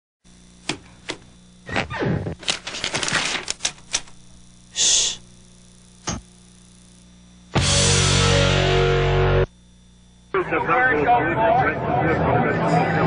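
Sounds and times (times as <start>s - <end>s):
short shushing hiss: 4.7s - 5.3s.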